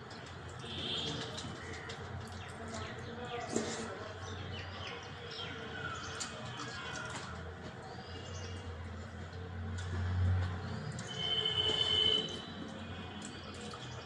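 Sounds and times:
birds chirping and twittering: 0.0s - 9.5s
faint clicks of eating: 0.0s - 14.0s.

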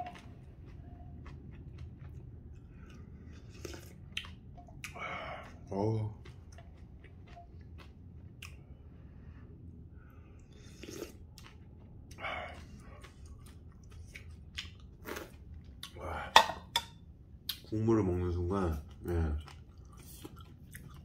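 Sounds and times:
person chewing noodles: 0.0s - 17.6s, 18.7s - 21.0s
slurping broth: 10.6s - 11.2s.

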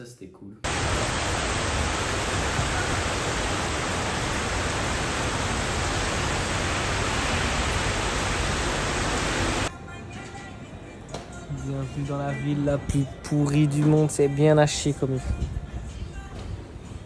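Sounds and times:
loud steady rushing noise: 0.7s - 9.7s.

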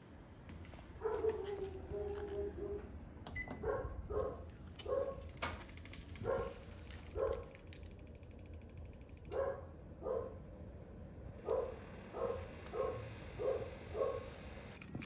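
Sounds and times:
dog barking: 1.0s - 2.9s, 3.6s - 5.2s, 6.2s - 7.5s, 9.3s - 10.4s, 11.4s - 14.4s.

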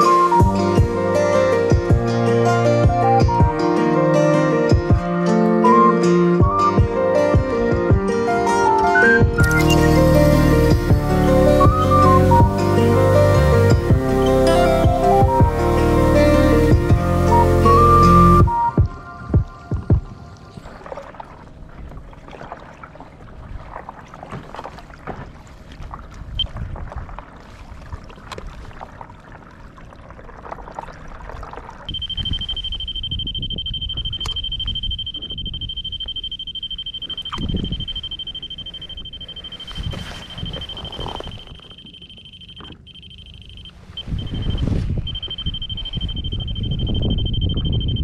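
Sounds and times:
water noise: 0.0s - 48.0s
wind: 0.0s - 48.0s
high-pitched electronic tone: 8.6s - 19.6s, 31.9s - 48.0s
low rumble: 43.6s - 48.0s.

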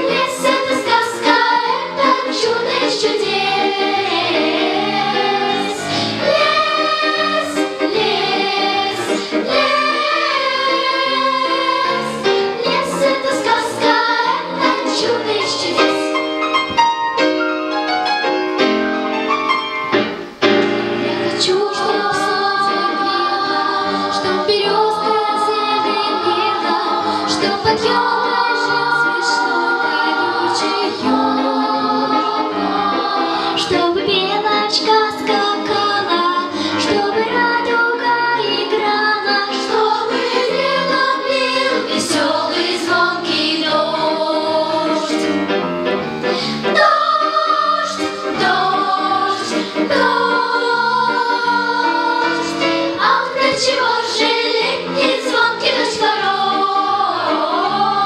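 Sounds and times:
children's choir singing: 0.0s - 17.1s, 20.0s - 58.0s.

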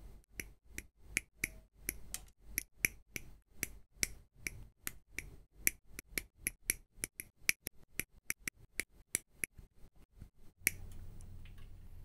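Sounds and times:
faint low hum: 7.8s - 12.0s.

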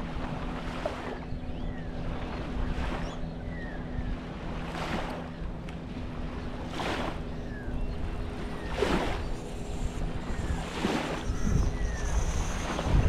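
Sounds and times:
boat motor running: 0.0s - 13.0s
wind on microphone: 0.0s - 13.0s
water washing in swells: 4.2s - 13.0s.

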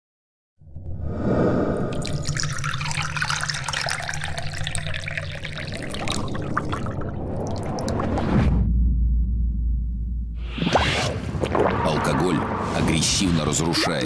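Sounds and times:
liquid pouring into glass: 1.8s - 8.1s
deep low rumble: 6.9s - 10.6s.

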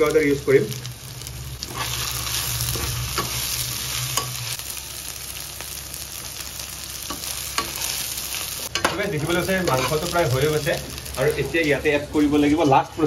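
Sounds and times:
food sizzling in oil: 0.0s - 13.0s
spatula scraping pan: 9.6s - 10.1s.

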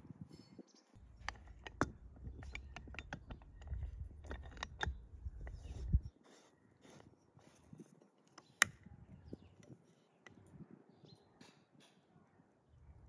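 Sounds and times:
metal lid clamp clicking: 1.0s - 6.0s.

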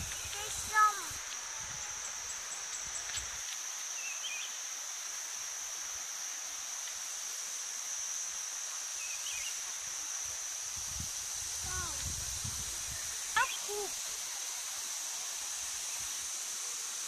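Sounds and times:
rushing falling water: 0.0s - 1.5s, 4.6s - 17.0s
high-pitched insect drone: 0.0s - 17.0s.

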